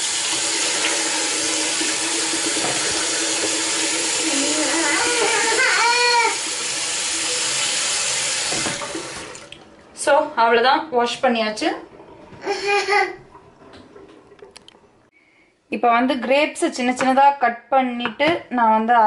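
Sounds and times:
cloth rinsed and squeezed: 0.0 - 10.2, 11.0 - 15.1
tap water running: 0.0 - 15.1.

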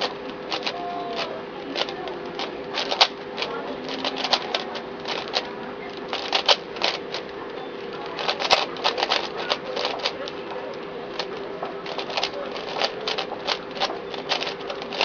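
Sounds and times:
puzzle cube clicking: 0.0 - 15.0
steady low hum: 0.0 - 15.0.

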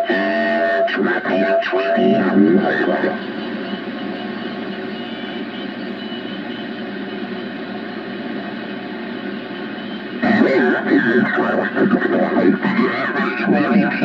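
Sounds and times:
garbled radio voice: 0.0 - 4.9, 10.2 - 14.0
radio static hiss: 0.0 - 14.0.

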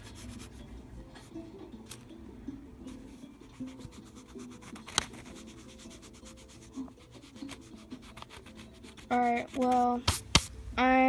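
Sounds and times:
eraser rubbing on paper: 3.6 - 10.2.

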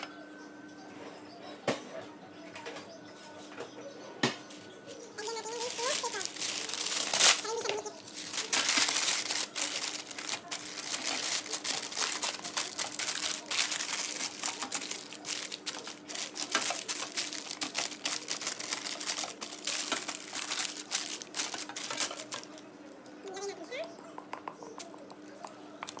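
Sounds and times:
paper crinkling and crackling: 5.2 - 23.2.

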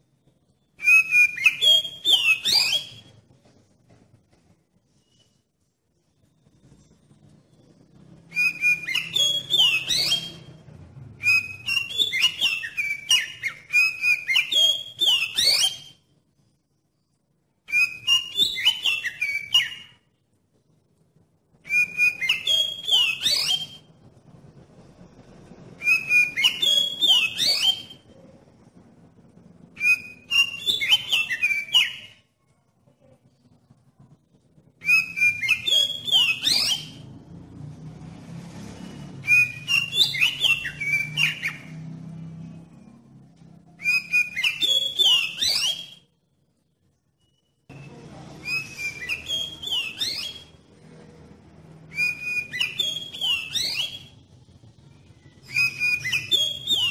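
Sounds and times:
bird whistling song: 0.5 - 3.2, 7.6 - 16.1, 17.6 - 20.1, 21.6 - 24.0, 25.8 - 28.2, 29.6 - 32.3, 34.8 - 37.2, 38.7 - 41.8, 43.8 - 46.2, 47.0 - 50.6, 51.8 - 54.3, 55.0 - 56.9.

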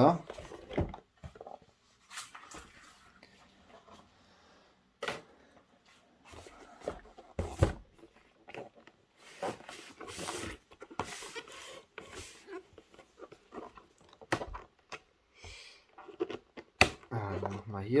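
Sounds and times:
cardboard box scraping and rustling: 8.6 - 14.0.

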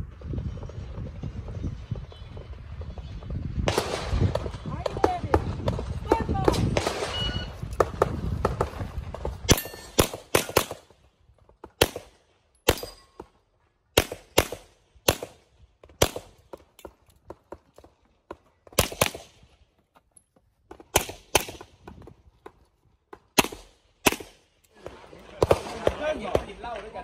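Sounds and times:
pistol shots: 9.5 - 10.9, 11.8 - 13.1, 14.0 - 15.4, 16.0 - 16.3, 18.8 - 19.4, 20.9 - 21.6, 23.4 - 24.4.

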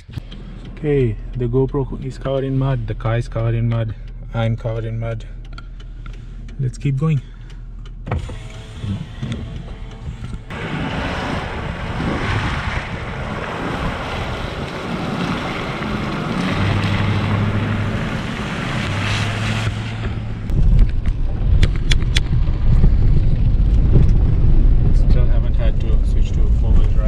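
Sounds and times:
road and engine rumble: 0.0 - 27.0
wind rushing over microphone: 9.1 - 27.0.

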